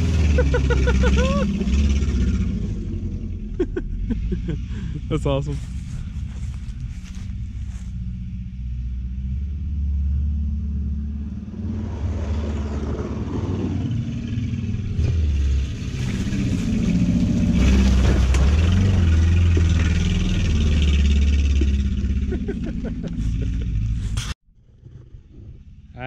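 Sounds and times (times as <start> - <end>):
car engine revving: 0.0 - 24.4
tyres scrabbling on loose dirt: 15.7 - 24.3.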